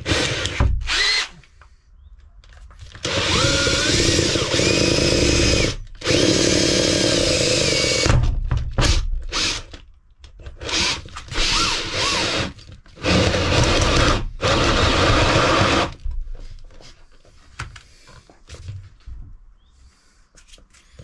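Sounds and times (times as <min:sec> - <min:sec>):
power drill motor whine: 0:00.1 - 0:01.3, 0:03.0 - 0:08.1, 0:10.6 - 0:16.0.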